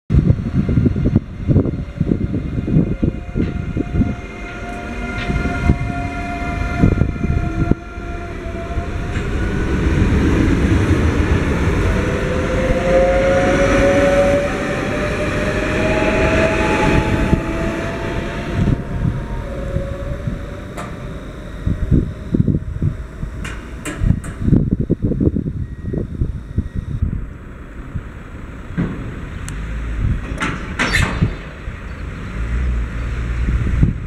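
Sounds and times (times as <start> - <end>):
train motor whine rising in pitch: 0.1 - 27.0
train wheel and rail rumble: 0.1 - 34.0.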